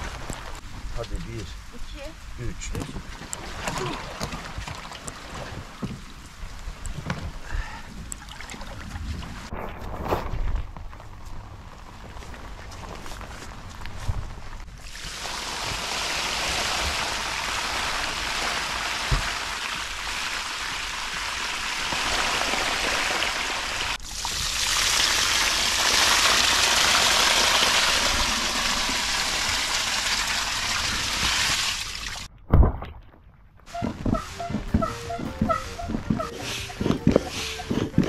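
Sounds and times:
thump: 32.5 - 32.9.

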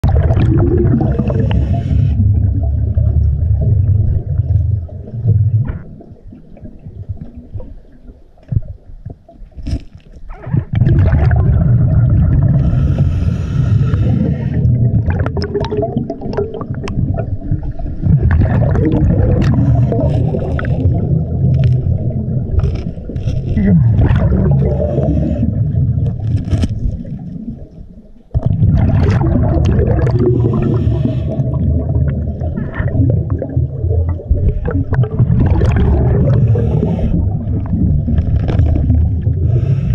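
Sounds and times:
clicks and knocks underwater: 0.0 - 1.7, 2.4 - 12.8, 13.9 - 39.9
regulator bubbles gurgling underwater: 0.0 - 39.9.

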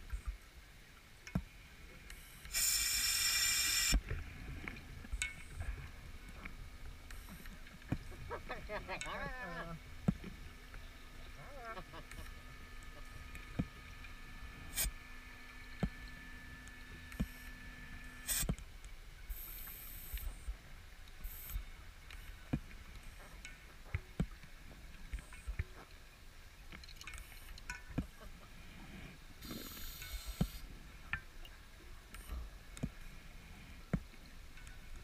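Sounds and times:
electric motor whine underwater: 2.1 - 8.0, 9.4 - 18.6
bubble hiss: 2.5 - 4.0, 29.4 - 30.6.

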